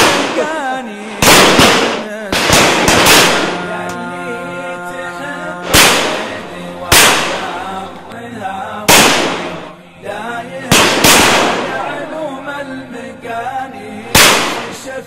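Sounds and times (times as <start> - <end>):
shotgun shots: 0.0 - 3.8, 5.6 - 7.8, 8.9 - 9.8, 10.7 - 12.3, 14.1 - 14.9
man singing: 0.0 - 15.0.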